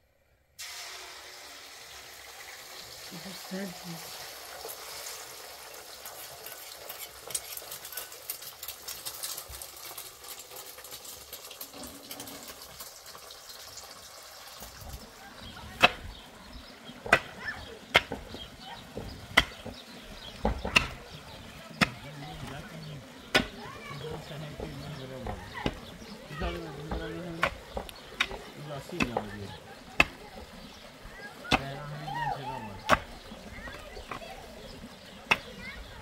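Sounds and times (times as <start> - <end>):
egg sizzling in oil: 0.6 - 36.0
pickaxe striking stony ground: 17.0 - 17.4, 18.0 - 18.4, 19.3 - 19.8, 20.4 - 21.0, 23.3 - 23.6, 35.3 - 35.5.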